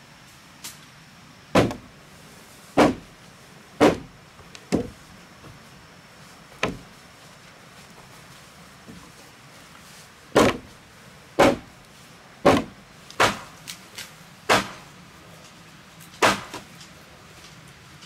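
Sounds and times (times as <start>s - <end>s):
sledgehammer striking wooden beams: 1.5s - 1.9s, 2.8s - 3.2s, 3.8s - 5.0s, 6.6s - 6.9s, 10.4s - 10.7s, 11.4s - 11.7s, 12.4s - 13.6s, 14.5s - 14.9s, 16.2s - 16.7s.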